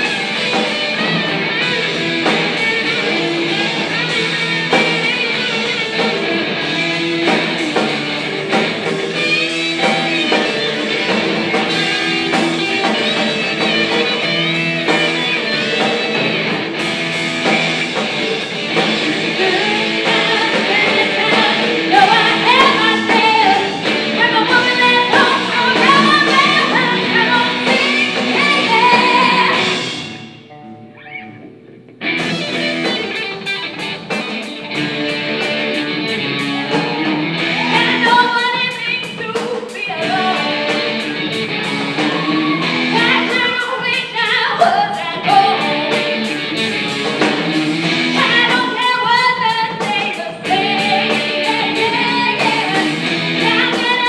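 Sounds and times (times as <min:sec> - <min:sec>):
drum kit: 0:00.0 - 0:31.1, 0:31.9 - 0:54.0
bass guitar: 0:00.0 - 0:54.0
electric guitars: 0:00.0 - 0:54.0
woman singing: 0:18.9 - 0:29.8, 0:36.5 - 0:41.0, 0:41.6 - 0:46.3, 0:48.1 - 0:54.0.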